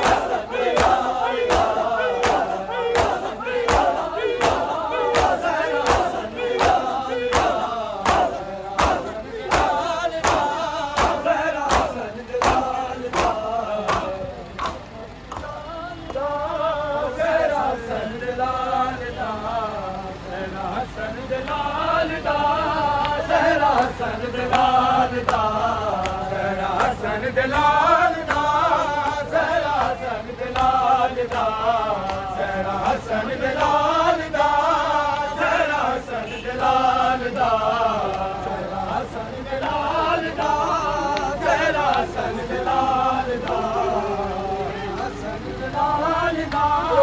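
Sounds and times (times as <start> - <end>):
chest-beating slaps: 0.0 - 15.5
men chanting a lament: 0.0 - 47.0.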